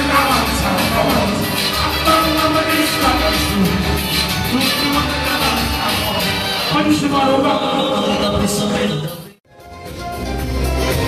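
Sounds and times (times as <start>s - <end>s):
loud amplified live music: 0.0s - 11.0s
man singing into microphone: 4.5s - 9.4s.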